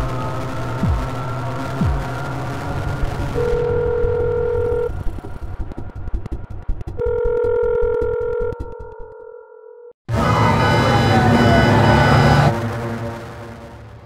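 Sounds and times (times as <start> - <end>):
low throbbing music: 0.0 - 9.3, 10.1 - 14.0
phone ring tones: 3.6 - 4.9, 7.0 - 9.8.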